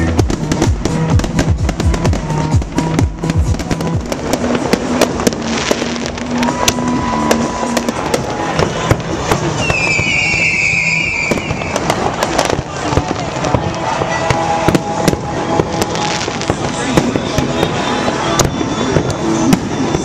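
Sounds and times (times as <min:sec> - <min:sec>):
fireworks bangs and crackles: 0:00.0 - 0:20.0
high wavering whistle: 0:09.6 - 0:12.0.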